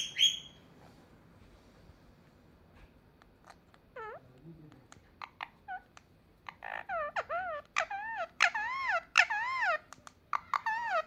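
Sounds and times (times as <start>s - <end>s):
parakeet warbling calls: 0.0s - 0.6s, 5.2s - 11.0s.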